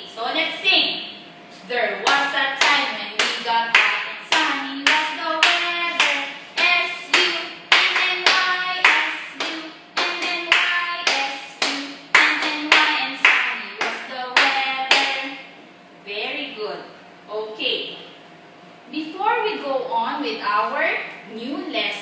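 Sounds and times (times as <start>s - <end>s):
woman singing a children's song: 1.6s - 15.5s, 16.1s - 18.0s, 18.9s - 22.0s
hand claps keeping a beat: 2.1s - 15.3s.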